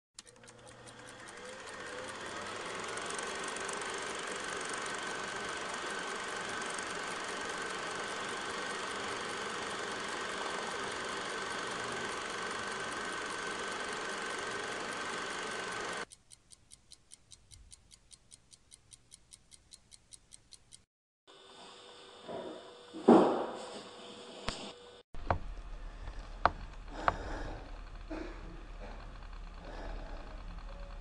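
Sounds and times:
fast even ticking: 0.2 - 20.8
mechanical drone with high whine: 21.3 - 31.0.

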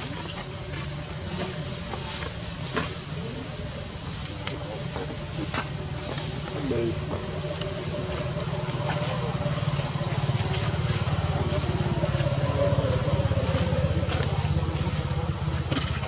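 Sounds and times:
small engine chugging: 3.5 - 16.0.

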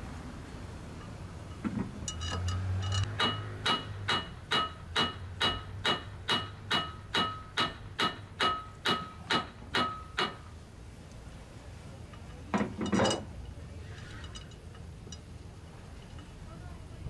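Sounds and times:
hammer striking steel pulley: 1.0 - 10.5.

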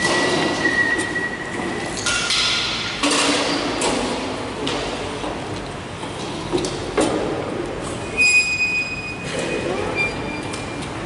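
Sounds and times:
high squeals: 8.0 - 10.8.

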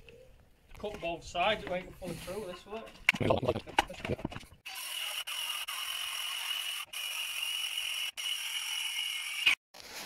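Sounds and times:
circular saw cutting wood: 4.6 - 9.6.

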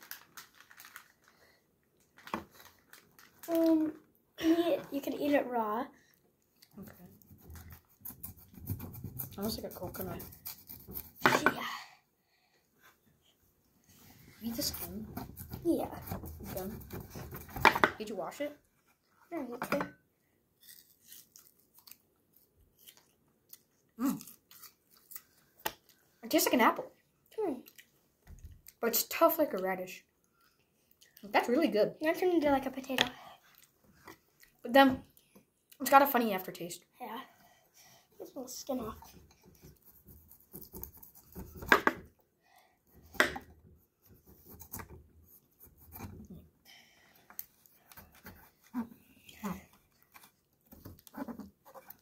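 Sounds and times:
knife scraping vegetable skin: 6.8 - 11.4, 14.4 - 17.7, 20.6 - 21.5, 39.0 - 42.1
crunchy chewing: 20.6 - 25.3.

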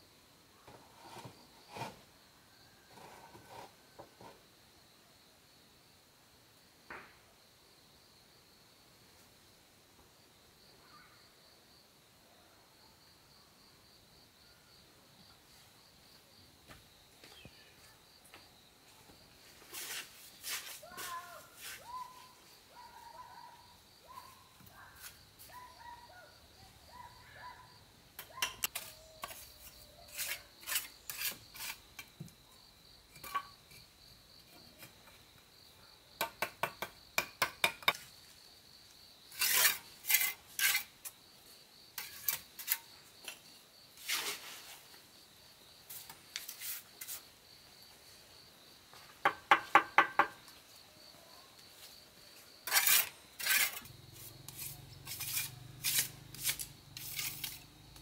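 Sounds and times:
metal scraping and clinking: 52.7 - 57.7.

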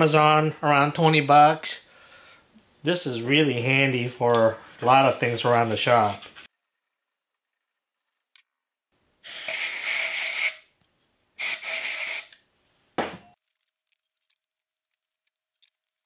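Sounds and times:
aerosol spray hissing: 9.2 - 10.7, 11.4 - 12.4.

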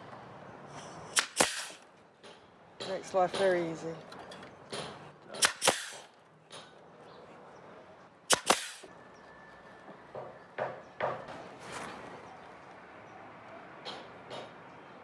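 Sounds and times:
nail gun firing into wood: 1.1 - 1.8, 4.7 - 6.1, 8.3 - 8.9.

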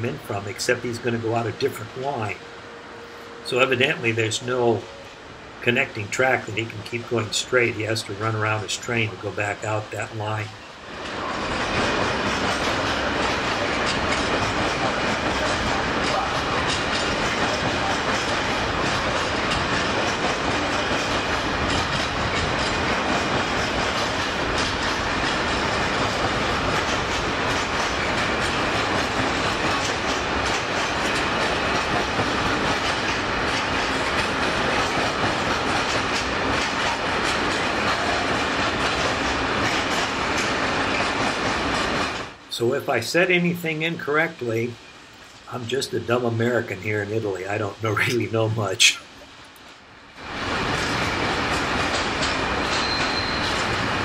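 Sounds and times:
freight train rolling: 0.0 - 54.0
wheels clicking over rail joints: 3.6 - 42.6, 50.4 - 54.0.

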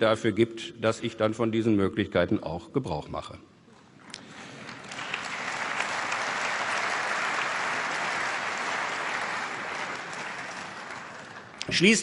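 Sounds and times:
crowd applause: 4.3 - 11.9.

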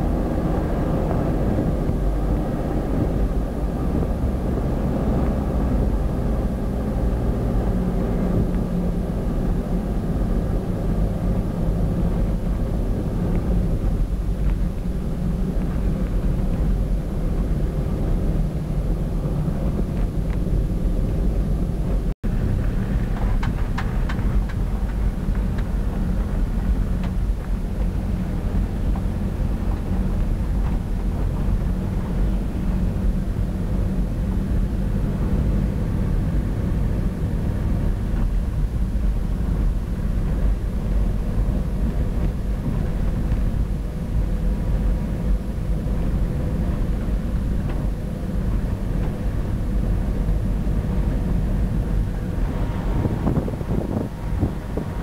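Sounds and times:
car engine rumble: 0.0 - 55.0
road rumble: 0.0 - 55.0.

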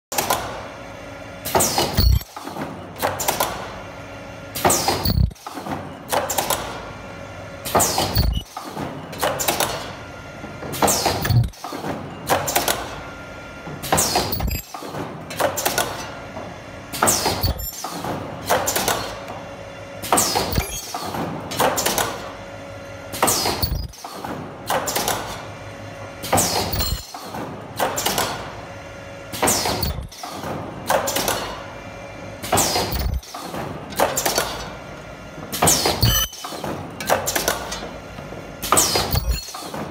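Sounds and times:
steady machine hum: 0.2 - 39.9
sharp mechanical clack: 1.5 - 3.6, 4.6 - 6.8, 7.7 - 9.9, 10.8 - 12.9, 13.8 - 16.1, 17.0 - 19.2, 20.0 - 22.3, 23.2 - 25.4, 26.2 - 28.4, 29.4 - 31.6, 32.4 - 34.7, 35.5 - 38.0, 38.6 - 39.9.

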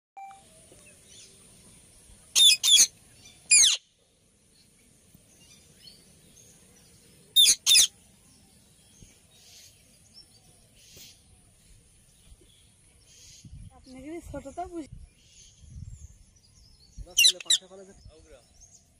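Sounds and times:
faint bird chirps: 0.2 - 18.9
parakeets screeching: 2.4 - 2.9, 3.5 - 3.8, 7.4 - 7.9, 17.1 - 17.7.

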